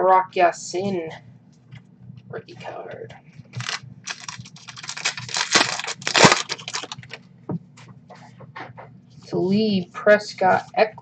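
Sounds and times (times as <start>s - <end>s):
foil wrapper tearing and crinkling: 3.6s - 7.2s.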